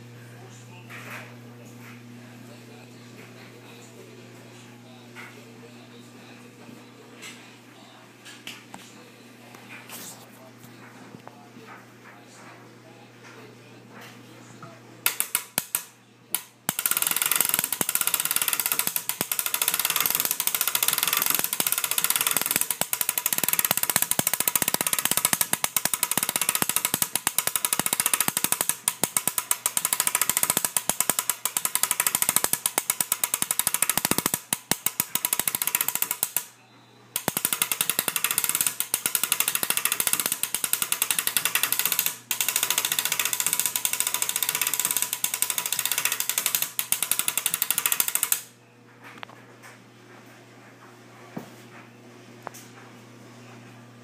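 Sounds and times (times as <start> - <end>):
wooden gears clattering: 16.7 - 36.5, 37.2 - 48.5.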